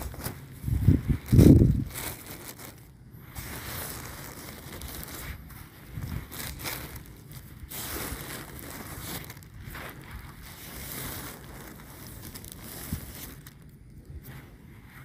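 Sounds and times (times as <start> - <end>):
wind buffeting microphone: 0.0 - 2.4.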